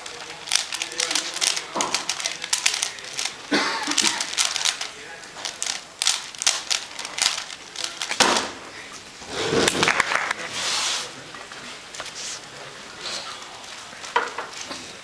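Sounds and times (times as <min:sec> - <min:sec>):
puzzle cube clicking turns: 0:00.0 - 0:03.4, 0:04.0 - 0:08.2.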